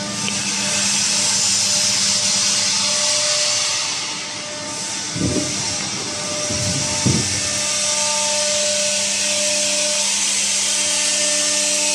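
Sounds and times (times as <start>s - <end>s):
cooling fans whirring hum: 0.0s - 11.9s
dull knocks: 5.2s - 7.7s.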